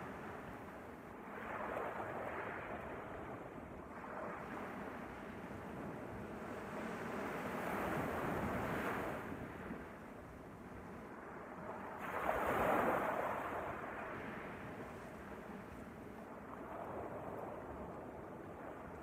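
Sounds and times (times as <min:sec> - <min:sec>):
waves washing up a sandy beach: 0:00.0 - 0:19.0.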